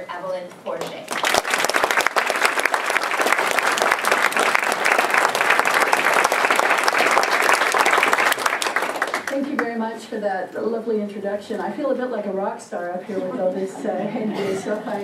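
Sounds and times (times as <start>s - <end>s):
audience applauding: 1.1s - 9.4s.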